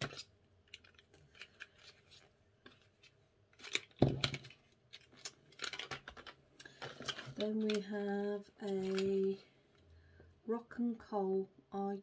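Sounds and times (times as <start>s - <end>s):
packaging rustling: 0.0s - 9.4s
small plastic clicks: 3.6s - 7.9s.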